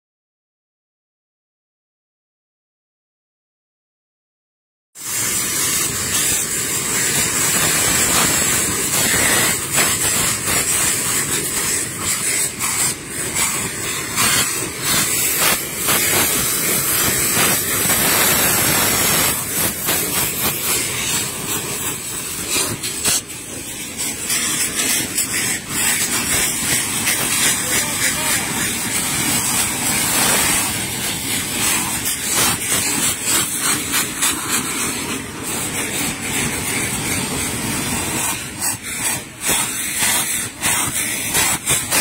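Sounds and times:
firework rockets hissing: 5.0 - 42.0
sharp cracks: 5.6 - 34.9.

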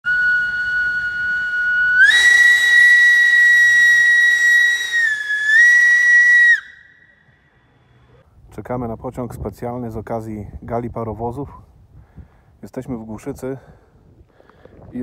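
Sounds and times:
steam locomotive whistle: 0.1 - 6.9.

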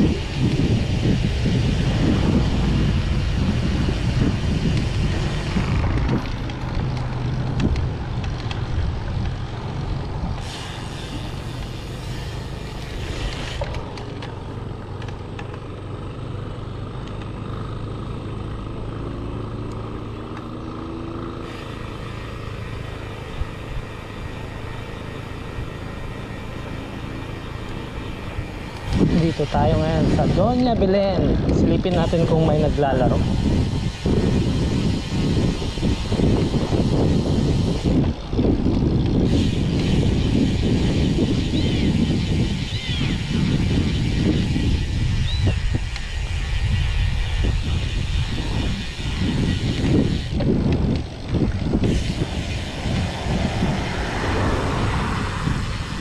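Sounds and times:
low engine hum: 0.0 - 56.0
motor traffic: 0.0 - 56.0
wind rumbling on microphone: 0.0 - 56.0
engine rising in pitch: 52.1 - 56.0.

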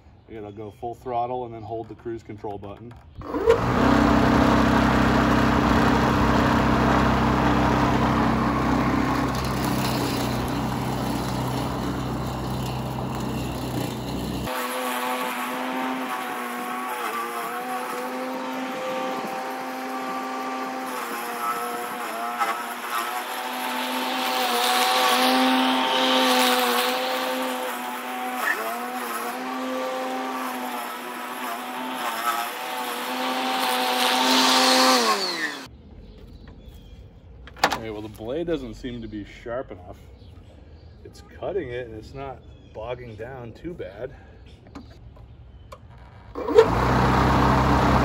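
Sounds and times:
electric mower motor whining: 3.1 - 35.7, 45.7 - 48.0.

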